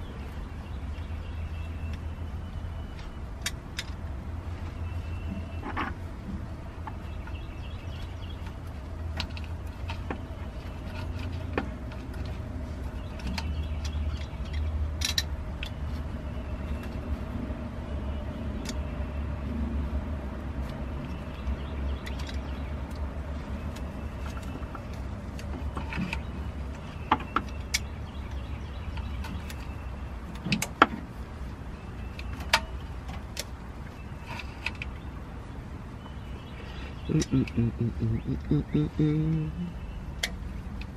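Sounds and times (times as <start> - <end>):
steady low rumble: 32.8 - 40.9.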